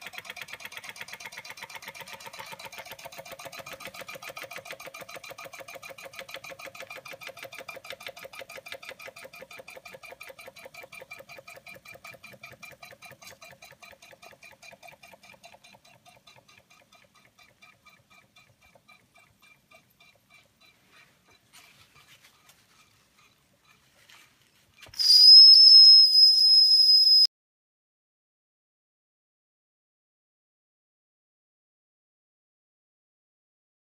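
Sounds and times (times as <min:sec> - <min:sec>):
toy steam engine chuffing: 0:00.0 - 0:23.9
high steam whistle: 0:25.0 - 0:27.3.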